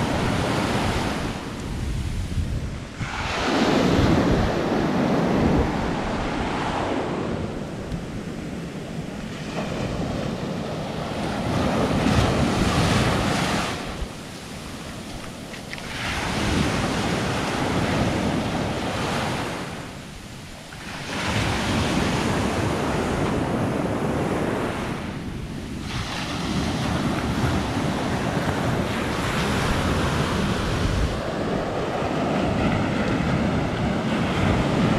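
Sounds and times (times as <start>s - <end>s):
small waves washing over sand: 0.0s - 34.9s
wind buffeting microphone: 0.0s - 34.9s.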